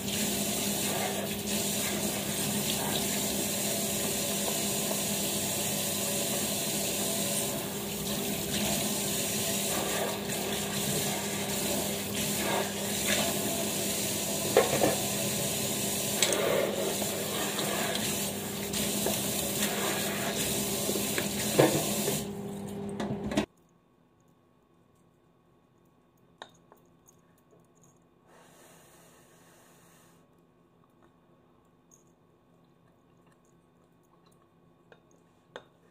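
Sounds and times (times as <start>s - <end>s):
tap water running into metal sink: 0.0s - 22.3s.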